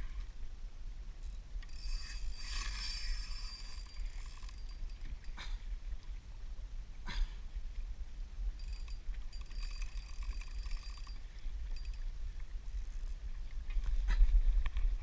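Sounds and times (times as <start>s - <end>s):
wind rumbling on microphone: 0.0s - 15.0s
fishing reel drag clicking: 1.3s - 5.4s, 8.6s - 13.8s.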